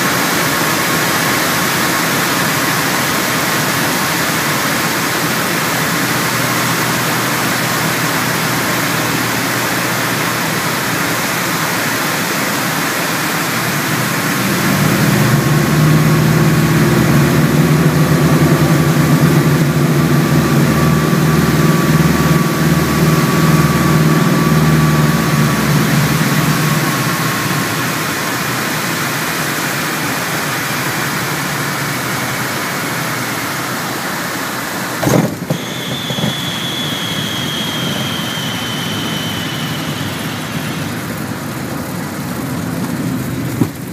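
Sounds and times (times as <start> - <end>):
aircraft engines droning: 0.0 - 43.9
airflow noise: 0.0 - 43.9
brief thump: 35.0 - 36.4.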